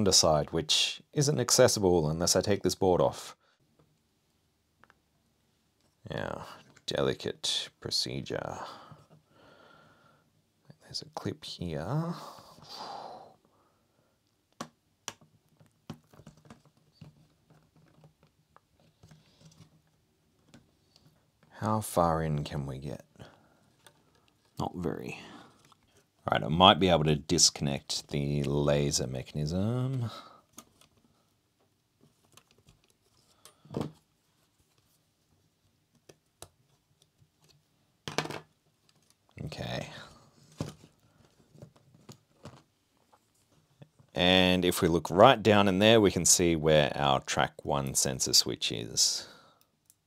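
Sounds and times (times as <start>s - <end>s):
faint plastic clicks and scrapes: 14.2s - 21.6s, 23.3s - 24.6s, 25.5s - 26.2s, 29.9s - 37.8s, 38.5s - 39.5s, 40.1s - 44.1s.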